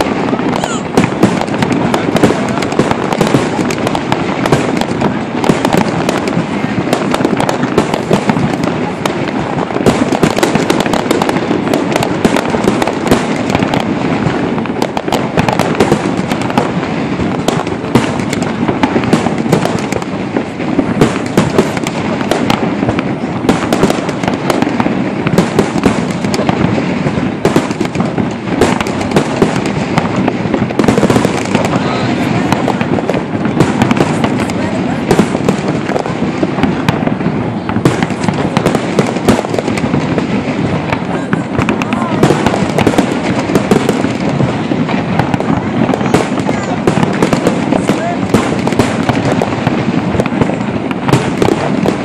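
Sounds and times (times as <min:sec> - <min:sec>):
fireworks bangs and crackles: 0:00.0 - 0:52.0.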